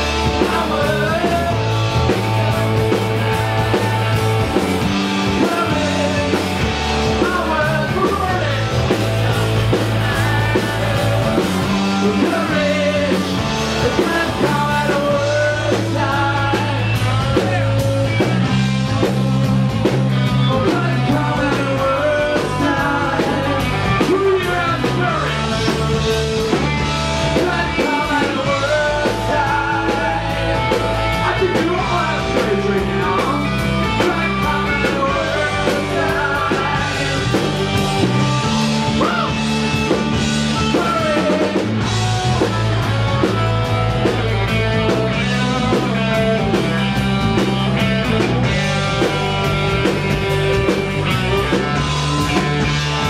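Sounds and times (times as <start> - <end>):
bass guitar: 0.0 - 53.0
drum kit: 0.0 - 53.0
electric guitar: 0.0 - 53.0
man singing into microphone: 0.2 - 1.7, 5.3 - 8.9, 11.9 - 19.5, 20.4 - 26.6, 27.3 - 30.6, 31.2 - 38.0, 40.6 - 41.7.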